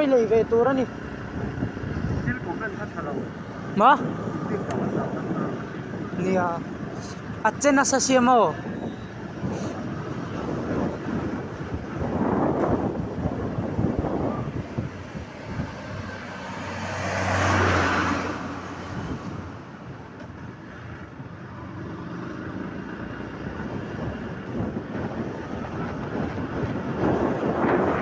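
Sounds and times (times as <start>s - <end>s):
road and wind noise: 0.0s - 28.0s
loud rush of noise: 9.3s - 28.0s.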